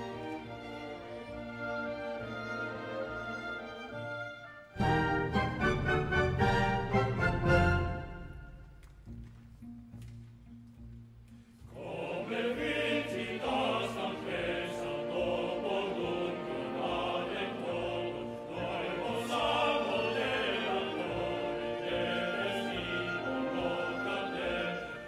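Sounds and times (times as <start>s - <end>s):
orchestra playing: 0.0s - 9.1s, 13.5s - 25.0s
male opera chorus singing: 11.7s - 25.0s.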